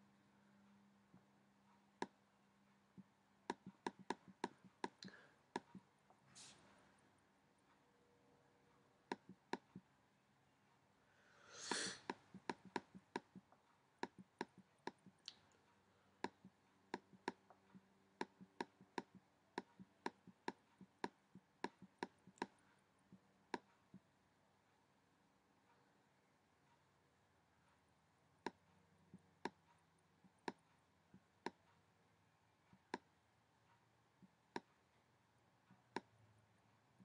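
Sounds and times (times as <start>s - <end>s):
computer mouse clicking: 3.0s - 5.8s, 9.1s - 9.8s, 12.1s - 15.5s, 16.2s - 22.6s.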